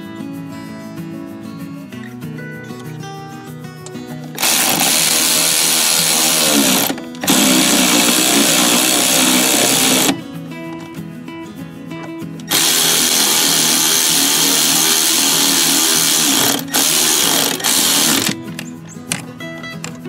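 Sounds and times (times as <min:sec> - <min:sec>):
quiet background music: 0:00.0 - 0:20.0
cordless drill spinning: 0:04.3 - 0:10.2, 0:12.5 - 0:18.4.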